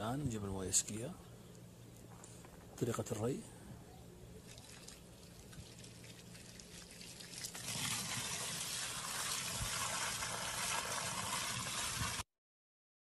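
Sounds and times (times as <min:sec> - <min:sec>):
water pouring into earth: 0:04.5 - 0:12.2.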